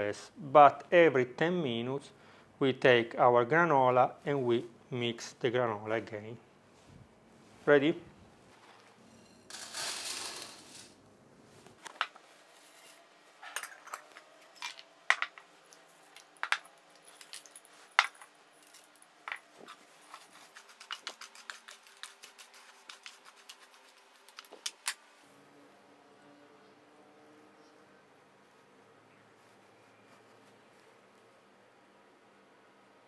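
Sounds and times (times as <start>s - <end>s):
oats pouring into metal pan: 9.5s - 11.0s.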